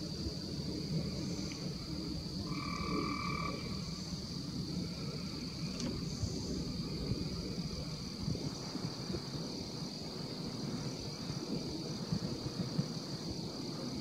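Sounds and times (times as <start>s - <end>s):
high-pitched insect trill: 0.0s - 14.0s
frog-like call: 2.4s - 4.1s.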